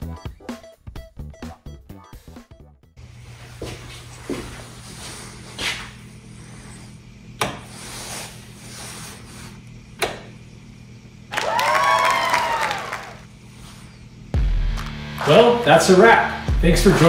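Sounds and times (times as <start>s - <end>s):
music: 0.0s - 3.0s, 14.3s - 17.0s.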